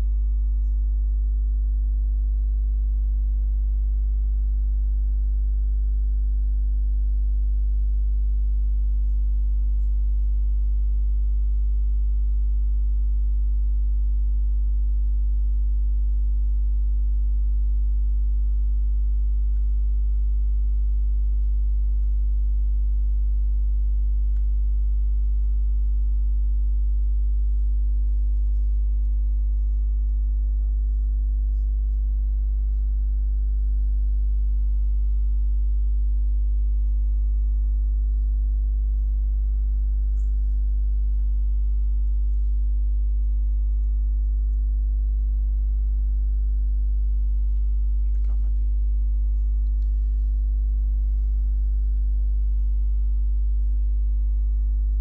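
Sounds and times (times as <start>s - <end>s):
electrical mains hum: 0.0s - 55.0s.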